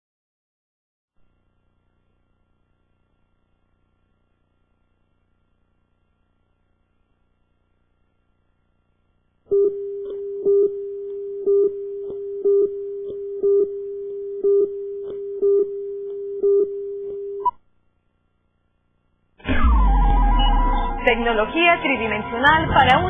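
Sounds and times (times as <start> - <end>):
steady electronic tone: 19.4 - 23.0
electronic beeps: 19.5 - 21.5.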